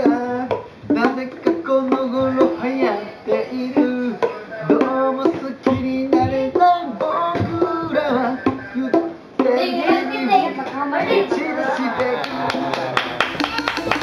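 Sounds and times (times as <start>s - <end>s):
children singing: 6.1s - 14.0s.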